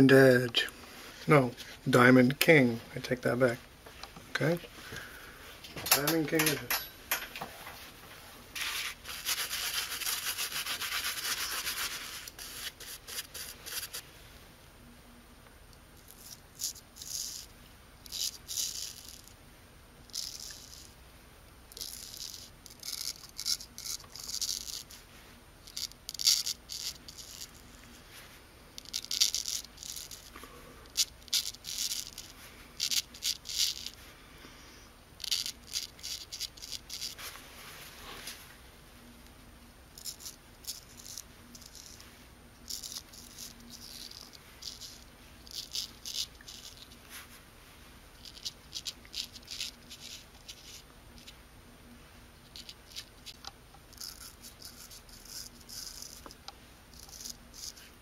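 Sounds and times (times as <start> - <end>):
straight razor scraping stubble: 8.6 - 14.0, 21.8 - 25.0, 28.8 - 30.3, 35.2 - 37.3, 52.5 - 56.4, 57.0 - 58.0.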